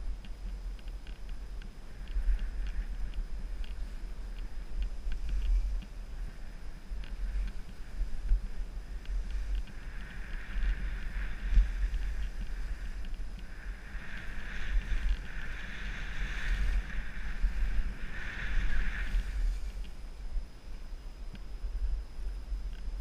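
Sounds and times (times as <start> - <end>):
wind rumble on microphone: 0.0 - 23.0
skis hissing over packed snow: 1.8 - 20.8.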